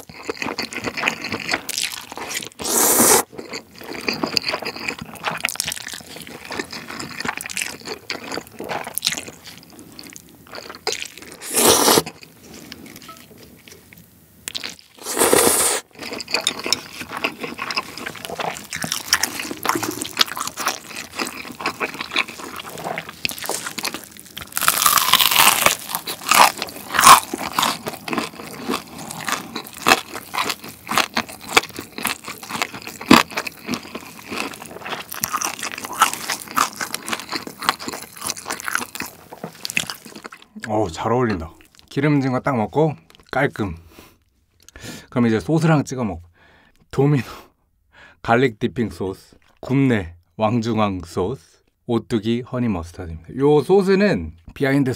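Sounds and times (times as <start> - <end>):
crunching and chewing crisp skin: 0.0 - 42.0
slurping noodles: 1.7 - 3.3, 11.2 - 12.2, 15.0 - 16.3.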